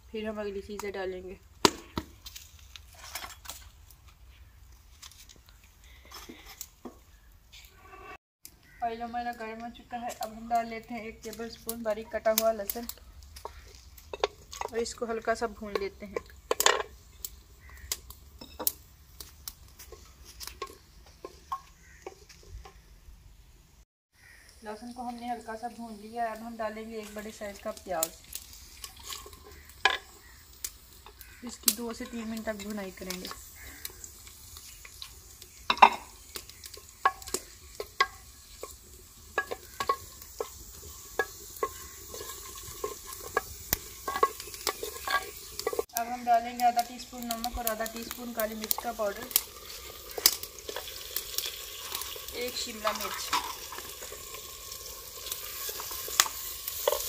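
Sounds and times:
garlic crackling in hot oil: 0.0 - 7.8, 8.4 - 23.5, 24.2 - 57.0
onions sizzling: 0.0 - 57.0
spatula knocking and scraping pot: 35.7 - 45.9, 55.2 - 57.0.

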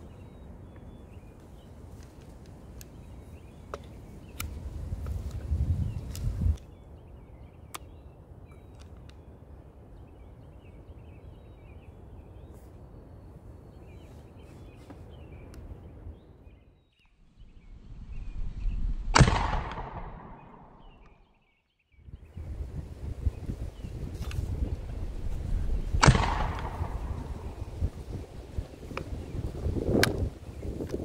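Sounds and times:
gunshot ringing: 19.2 - 20.8, 26.0 - 27.6.

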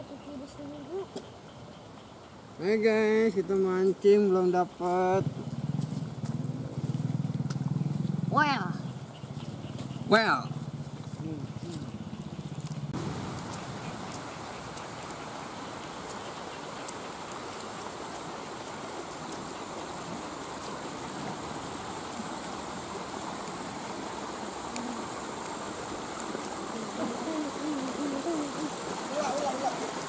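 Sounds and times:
water rushing down ditch: 2.0 - 30.0.

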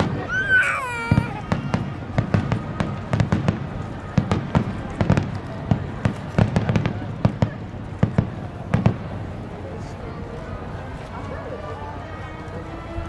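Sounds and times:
fireworks bursting with sharp bangs: 0.0 - 9.4.

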